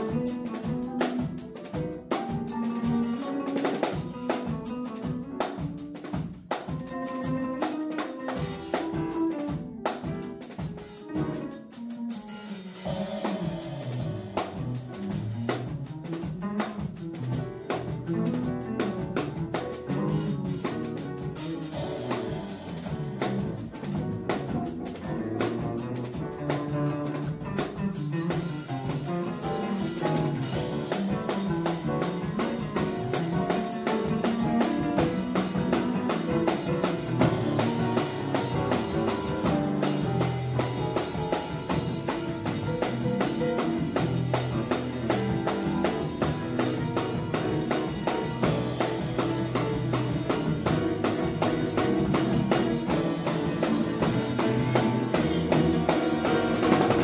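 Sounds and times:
drum kit: 0.0s - 57.0s
live band playing: 0.0s - 57.0s.

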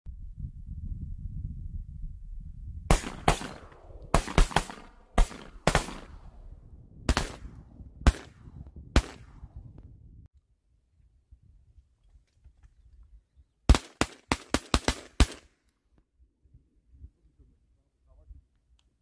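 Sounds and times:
low rumble: 0.1s - 4.2s
shotgun shots: 2.9s - 6.4s, 7.1s - 9.4s, 13.7s - 15.5s.

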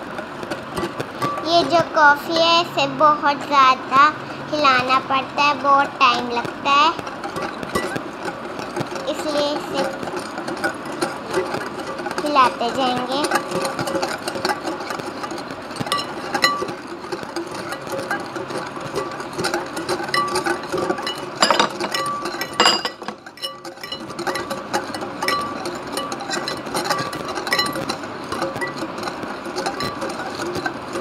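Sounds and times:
whisk clinking against glass bowl: 6.4s - 31.0s.

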